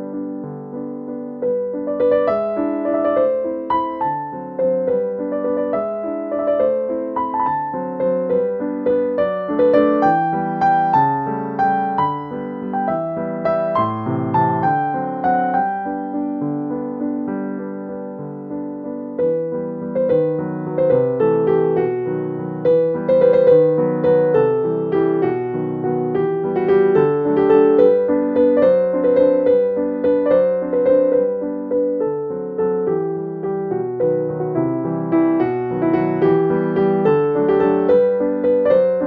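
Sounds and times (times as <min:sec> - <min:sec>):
piano music: 0:00.0 - 0:39.0.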